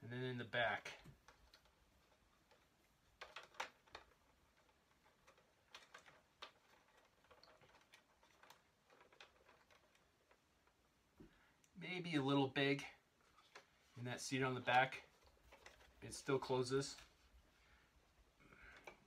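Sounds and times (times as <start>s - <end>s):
plastic toys clicking and tapping: 0.7s - 10.9s, 14.6s - 17.2s, 18.5s - 19.0s.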